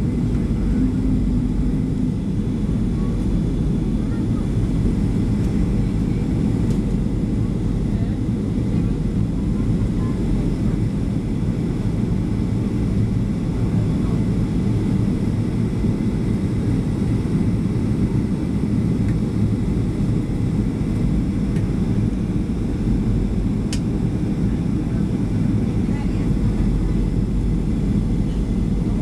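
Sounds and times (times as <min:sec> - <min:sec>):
jet engines roaring in cabin: 0:00.0 - 0:29.0.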